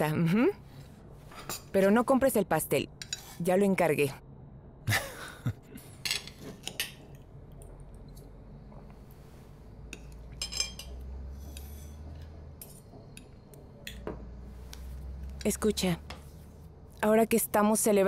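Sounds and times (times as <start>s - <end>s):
cutlery and dishes clinking: 6.0s - 7.1s, 10.0s - 11.0s.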